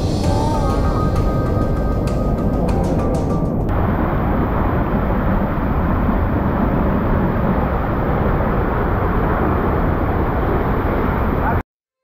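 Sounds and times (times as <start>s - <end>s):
waterfall rushing: 0.0s - 11.4s.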